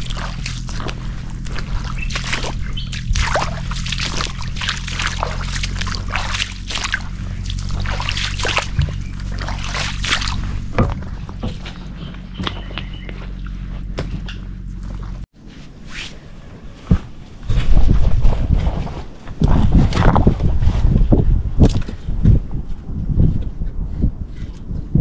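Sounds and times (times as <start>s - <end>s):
footsteps splashing through water: 0.0s - 13.8s
steady low hum: 0.0s - 24.2s.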